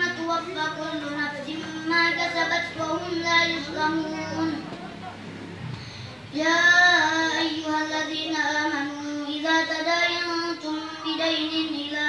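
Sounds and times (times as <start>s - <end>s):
man chanting recitation: 0.0s - 5.2s, 6.3s - 12.0s
man breathing: 5.6s - 6.3s.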